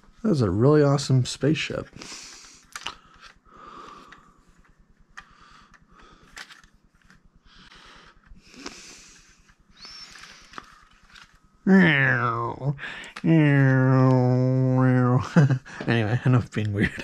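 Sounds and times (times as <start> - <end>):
packaging rustling: 9.8 - 11.5.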